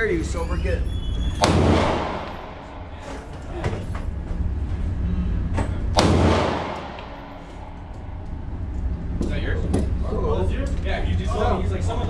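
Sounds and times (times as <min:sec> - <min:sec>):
steady low rumble: 0:00.0 - 0:12.0
handgun shot with echo: 0:01.4 - 0:02.6, 0:06.0 - 0:08.2.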